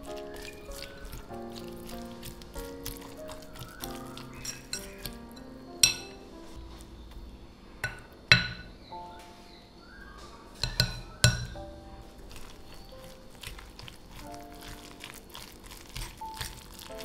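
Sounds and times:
fork mashing food in bowl: 0.0 - 6.1, 12.2 - 17.0
metal clinking on glass: 5.8 - 6.2.

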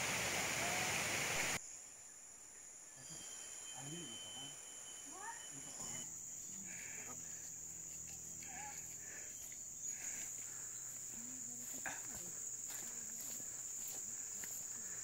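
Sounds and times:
high-pitched insect drone: 1.6 - 15.0
faint distant calls: 2.8 - 15.0.

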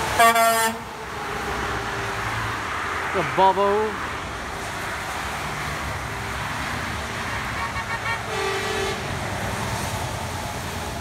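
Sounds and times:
highway traffic passing: 0.0 - 11.0
tyres hissing on wet road: 0.0 - 11.0
vehicle horn toots: 0.2 - 0.8, 7.6 - 9.1.

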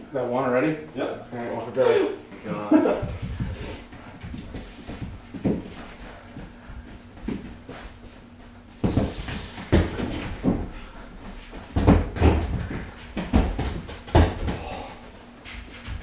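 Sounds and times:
ball thudding on concrete floor: 8.8 - 10.7, 11.3 - 14.8.

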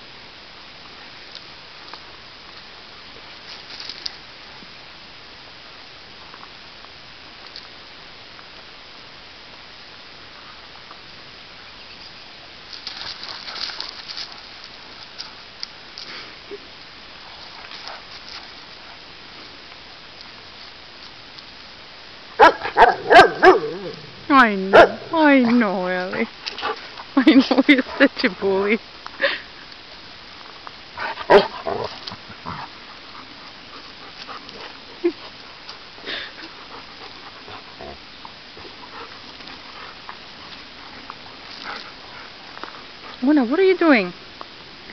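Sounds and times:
steady background hiss: 0.0 - 44.9
dog paws crunching on gravel: 12.6 - 21.6, 30.2 - 43.3
dogs play-growling: 22.6 - 25.2, 31.0 - 43.2.

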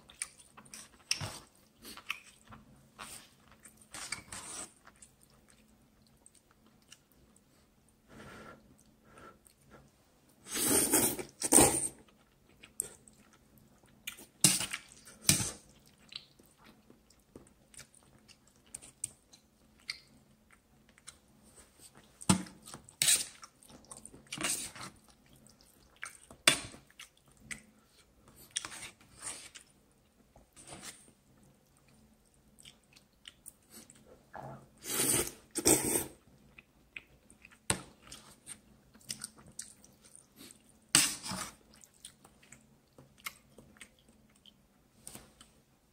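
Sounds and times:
person slurping noodles: 10.4 - 12.0, 34.4 - 36.2.

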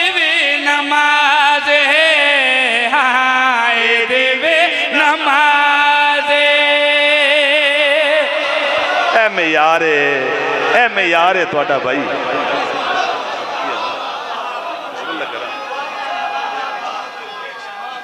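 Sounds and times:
man chanting: 0.0 - 12.8.

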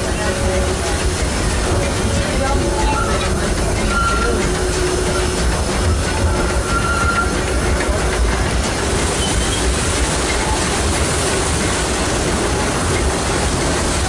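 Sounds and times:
train wheels rumbling on rails: 0.0 - 14.0
wheel squeal: 2.1 - 7.6, 9.2 - 9.7.

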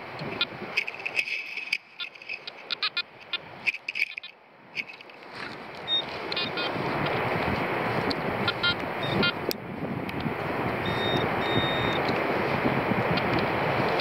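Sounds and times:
wind on microphone: 0.0 - 14.0
metal detector rapid beeping: 5.8 - 7.2, 8.4 - 9.4, 10.8 - 12.2.

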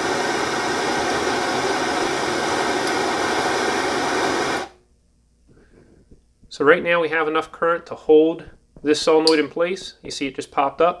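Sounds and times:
gas torch hissing: 0.0 - 4.8.

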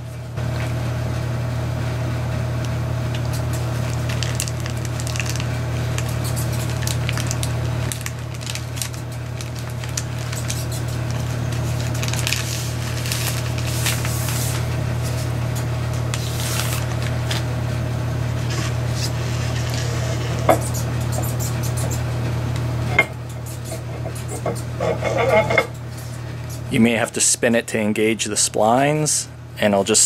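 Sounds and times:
steady low hum: 0.0 - 30.0
plastic bag crinkling: 3.1 - 15.2, 16.1 - 17.5.

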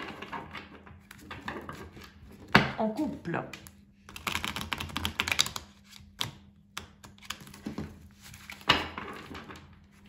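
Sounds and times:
cards shuffling on wooden table: 1.0 - 9.6.

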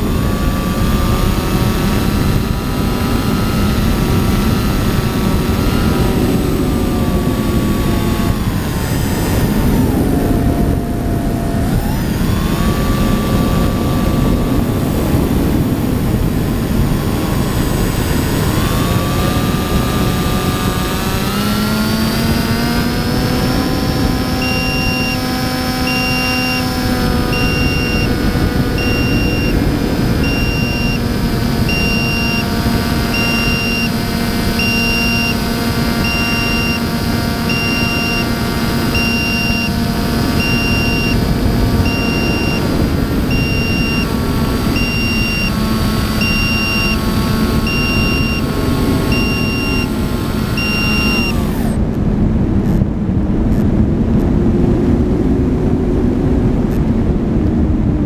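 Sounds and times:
model airplane motor whine: 0.0 - 54.4
faint high beep: 24.4 - 28.2, 28.8 - 29.6, 30.2 - 31.0, 31.6 - 35.4, 36.0 - 36.9, 37.5 - 51.4.

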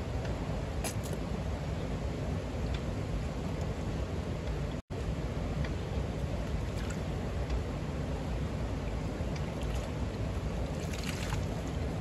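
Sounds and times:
stream running over rocks: 8.8 - 12.0
water splashing by hand: 10.7 - 11.8.

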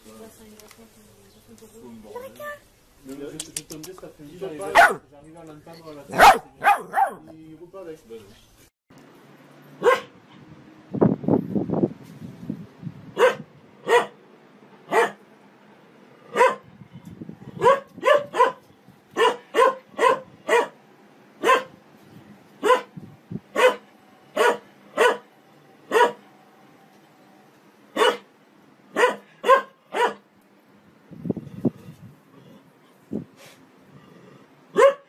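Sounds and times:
dog barking: 4.7 - 5.1, 6.1 - 7.3, 9.8 - 10.2, 13.2 - 14.2, 14.9 - 15.2, 16.3 - 16.7, 17.6 - 18.6, 19.2 - 20.8, 21.4 - 21.8, 22.6 - 22.9, 23.5 - 25.3, 25.9 - 26.2, 28.0 - 28.3, 28.9 - 30.3, 34.7 - 35.0.

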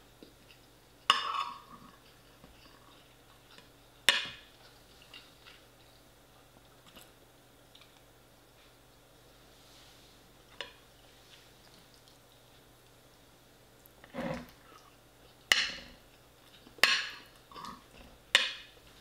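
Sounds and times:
faint chewing: 0.2 - 9.0, 10.4 - 13.0, 13.8 - 18.2
small scrapes: 14.1 - 14.6.

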